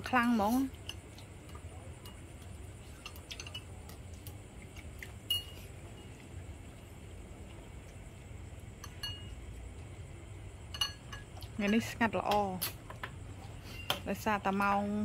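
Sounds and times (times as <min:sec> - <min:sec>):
light clinks: 0:08.8 - 0:09.4, 0:10.7 - 0:11.9.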